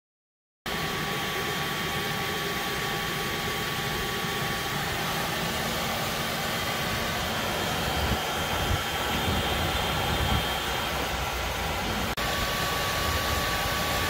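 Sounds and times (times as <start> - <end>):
car exhaust hiss and rumble: 0.7 - 14.0.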